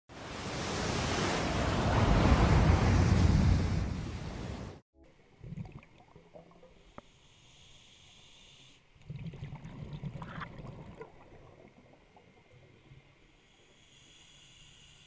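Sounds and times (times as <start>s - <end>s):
underwater bubbles rumbling: 9.1s - 12.8s.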